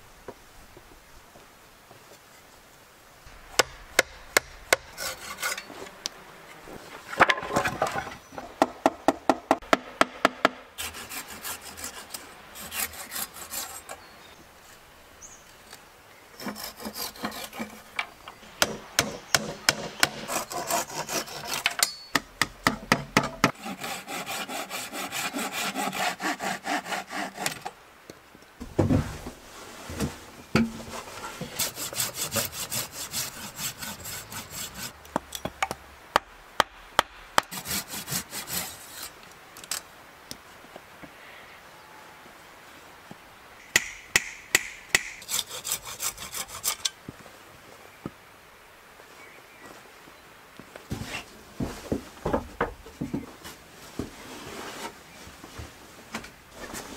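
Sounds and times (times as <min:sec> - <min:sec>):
hand saw cutting wood: 0:03.6 - 0:06.0, 0:10.8 - 0:14.0, 0:16.4 - 0:18.0, 0:18.6 - 0:22.0, 0:23.2 - 0:27.8, 0:31.4 - 0:35.0, 0:37.4 - 0:39.2, 0:43.8 - 0:47.0.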